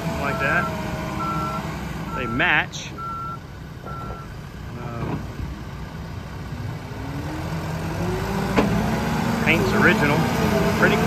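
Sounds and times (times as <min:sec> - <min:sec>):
diesel engine running: 0:00.0 - 0:11.0
reverse alarm beeps: 0:00.2 - 0:04.3.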